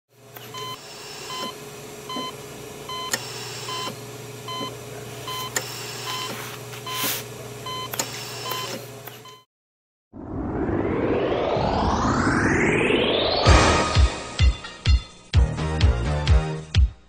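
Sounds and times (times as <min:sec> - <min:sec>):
heart monitor beeping: 0:00.5 - 0:07.1, 0:07.7 - 0:09.4.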